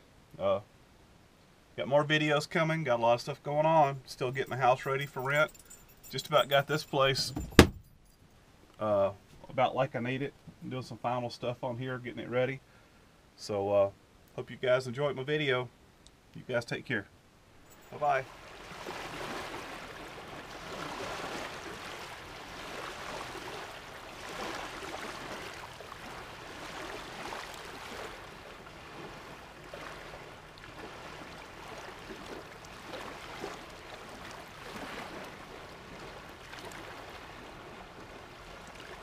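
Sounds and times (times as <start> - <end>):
small waves lapping on shore: 2.9 - 7.7, 17.6 - 39.0.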